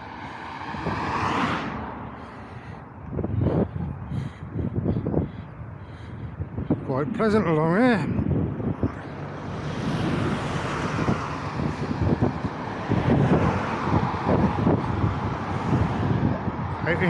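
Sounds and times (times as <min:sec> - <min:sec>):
road traffic passing: 0:00.0 - 0:17.0
wind buffeting microphone: 0:00.0 - 0:17.0.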